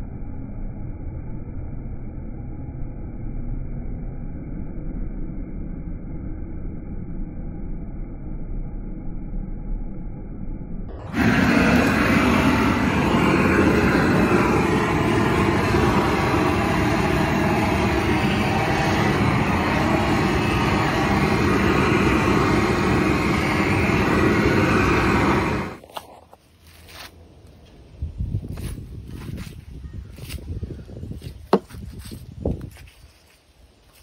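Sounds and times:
propane torch hissing: 11.0 - 25.8.

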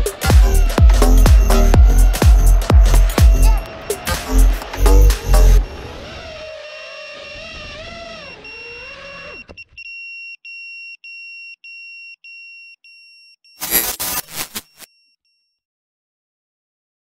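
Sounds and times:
drone motors whining: 0.0 - 9.4, 13.6 - 14.9
high electronic beeps: 0.1 - 5.6, 13.6 - 14.9
loud burst of sound: 13.6 - 14.8.

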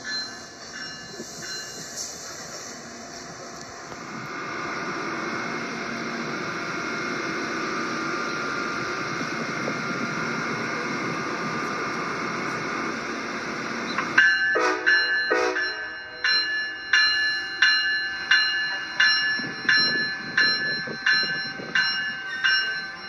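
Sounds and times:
chime: 0.0 - 2.0, 14.2 - 23.0.

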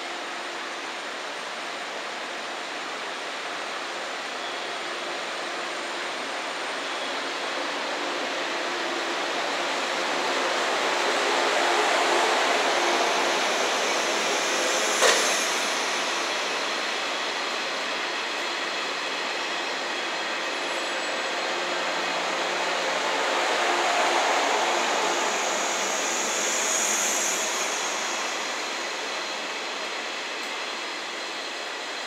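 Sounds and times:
train wheels rumbling on track: 0.0 - 32.0.

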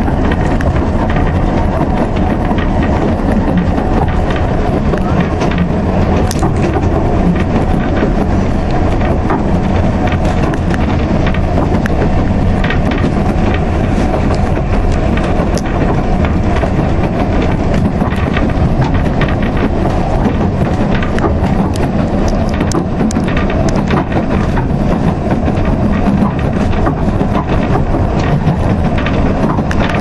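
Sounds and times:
small clicks and knocks: 0.0 - 30.0
train carriage rumble and rattle: 0.0 - 30.0.

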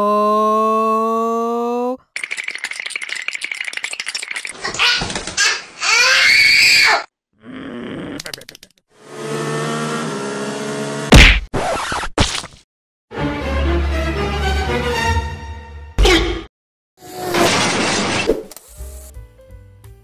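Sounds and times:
laugh-like voice effects: 8.0 - 8.8.

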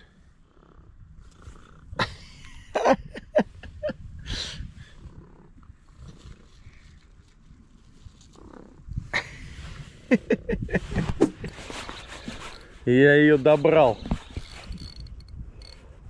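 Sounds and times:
rustling: 6.0 - 8.8, 10.8 - 15.8
cat purring: 8.1 - 9.1.

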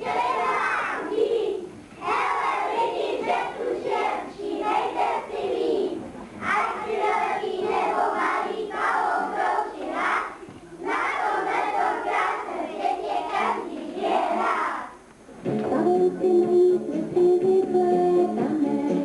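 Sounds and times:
children's voices in unison: 0.0 - 15.0
instrumental music: 15.4 - 19.0.

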